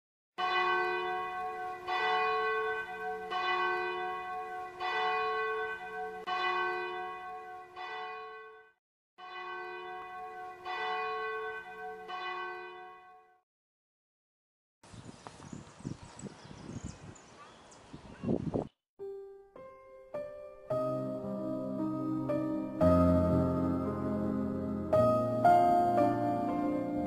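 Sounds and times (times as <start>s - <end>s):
bell tolling: 0.4s - 13.2s.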